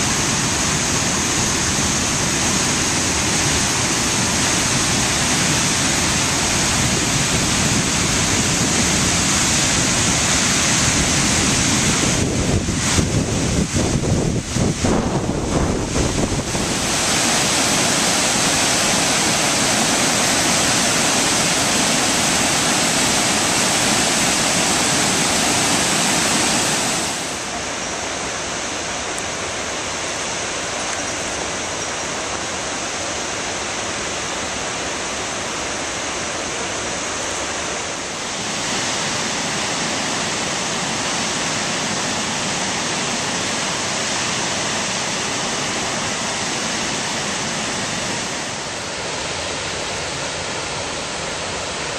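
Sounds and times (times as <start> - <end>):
waterfall rushing: 0.0 - 51.9
wind buffeting microphone: 0.4 - 17.7.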